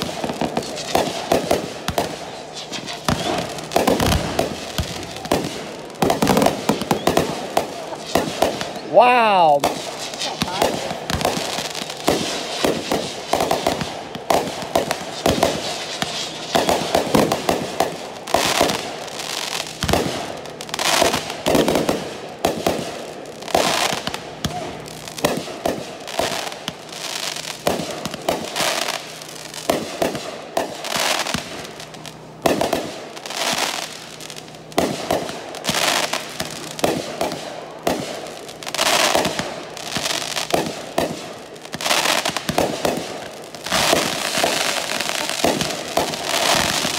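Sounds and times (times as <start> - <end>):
firework shell bursts: 0.0 - 8.8
fireworks popping and banging: 0.0 - 46.9.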